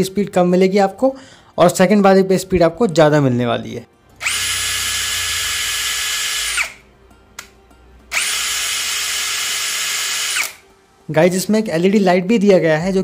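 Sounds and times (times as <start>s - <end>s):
cordless drill motor whine: 4.2s - 6.8s, 8.1s - 10.6s.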